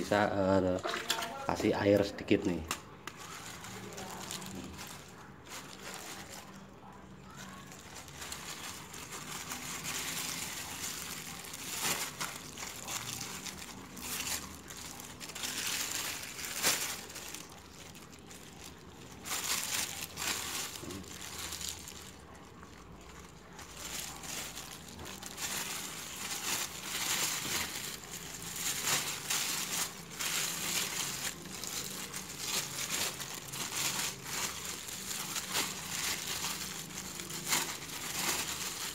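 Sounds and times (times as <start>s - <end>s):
plastic sheet crinkling: 0.0s - 38.9s.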